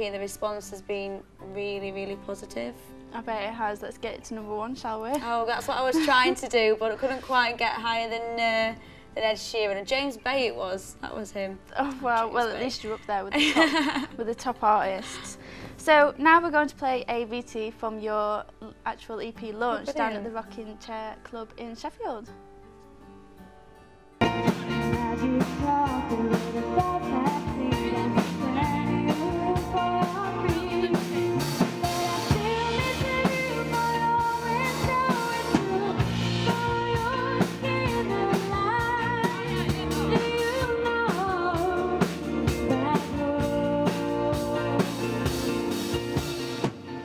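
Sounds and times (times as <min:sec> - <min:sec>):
band with guitars and drums: 0:24.2 - 0:47.0
woman singing into a microphone: 0:24.6 - 0:45.2.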